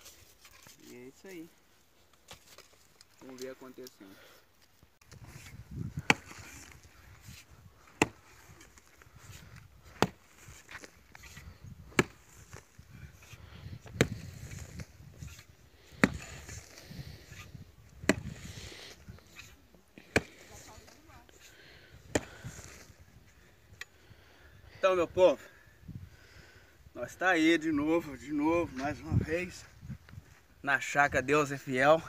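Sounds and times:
mattock striking clay ground: 5.0 - 16.7, 18.0 - 18.5, 19.4 - 21.0, 22.1 - 22.8.

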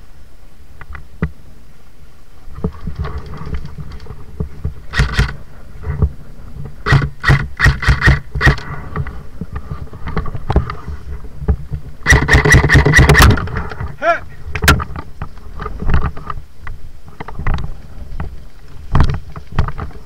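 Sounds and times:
airsoft guns firing: 6.8 - 8.7, 12.0 - 13.5.

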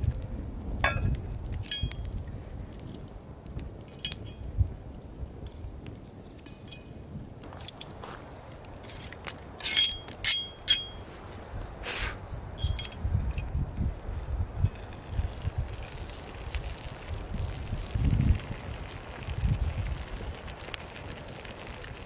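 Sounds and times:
metal tongs clinking on iron lid: 0.8 - 2.0, 9.6 - 11.0.

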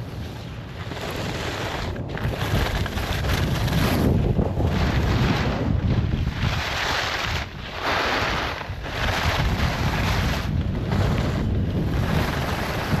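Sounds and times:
skis carving snow: 0.0 - 13.0
wind rumbling on microphone: 0.0 - 13.0.

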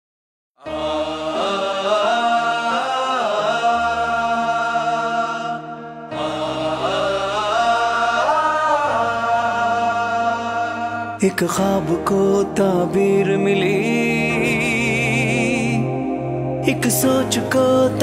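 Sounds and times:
voices chanting a melody: 0.6 - 11.8.

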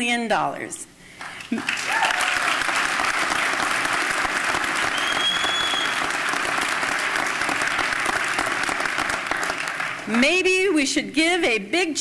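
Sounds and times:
audience applauding: 1.2 - 10.2.

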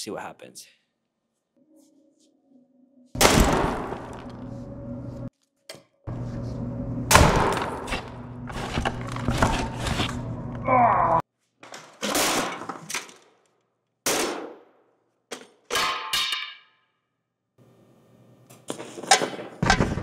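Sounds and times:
clattering and breaking: 11.6 - 13.6
pickaxe smashing a computer: 11.9 - 13.2.

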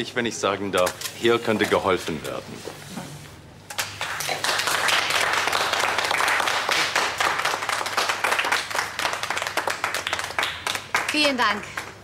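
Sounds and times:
people applauding: 3.8 - 12.0.

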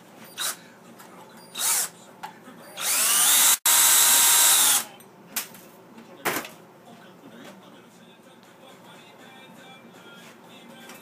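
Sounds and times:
cordless drill motor whining: 1.6 - 1.9, 2.8 - 4.8.

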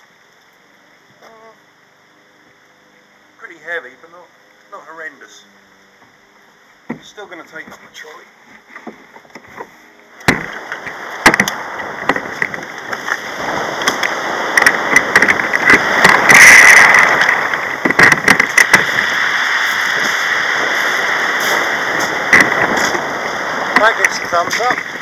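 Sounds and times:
wind on microphone: 10.2 - 25.0.

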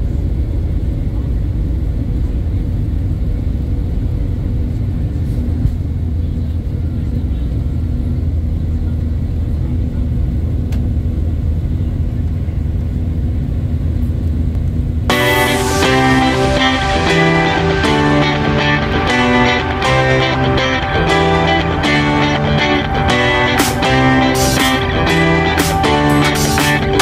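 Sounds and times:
jet engines rumbling in cabin: 0.0 - 15.1
guitar music: 15.1 - 27.0.

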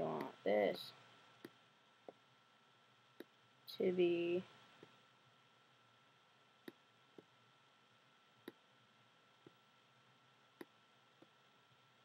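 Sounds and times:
faint computer mouse clicks: 10.6 - 11.3.

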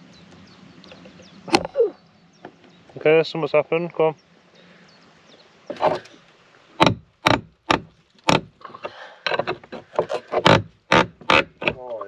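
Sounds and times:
bolt creaking and squeaking: 8.2 - 12.0.

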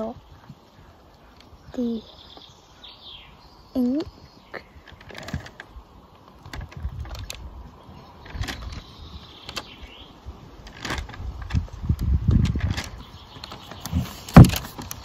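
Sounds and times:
wind rumble on microphone: 4.0 - 15.0.

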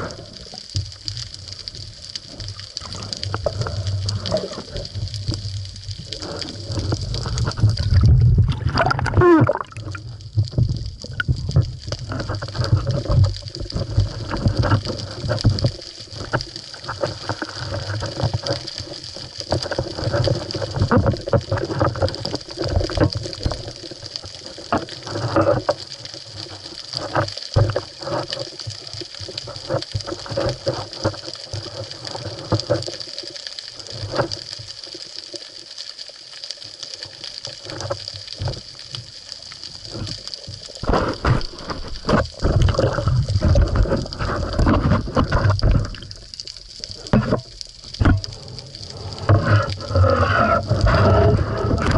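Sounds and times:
water sloshing: 6.2 - 23.7, 39.8 - 51.9.

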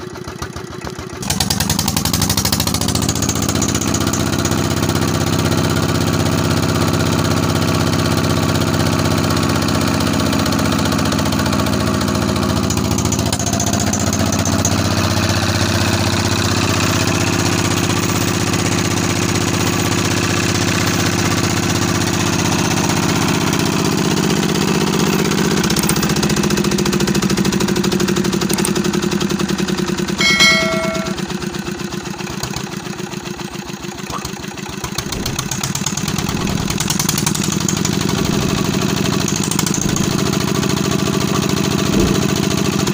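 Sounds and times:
diesel engine running: 0.0 - 42.9
metallic ding: 30.2 - 31.3.

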